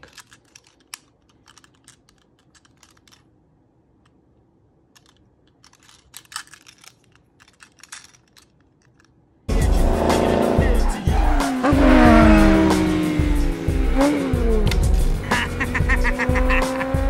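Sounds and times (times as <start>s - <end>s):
plastic parts clicking: 0.0s - 4.2s, 4.8s - 9.4s.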